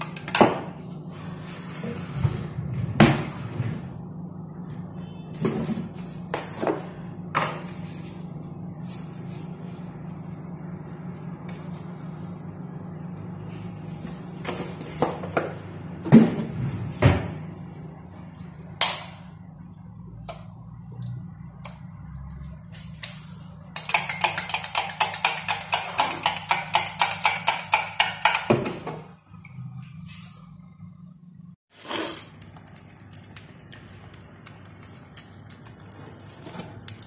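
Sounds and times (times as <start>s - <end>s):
utensil clinking in steel tumbler: 23.8s - 27.8s.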